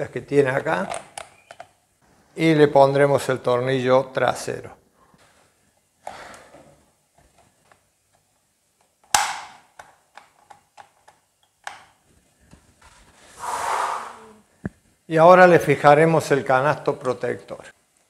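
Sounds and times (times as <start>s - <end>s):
plastic parts clicking and tapping: 7.2s - 12.6s.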